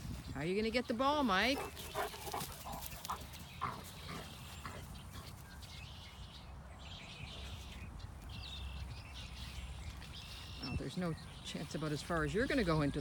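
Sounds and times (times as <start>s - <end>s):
wind on microphone: 0.0s - 0.7s.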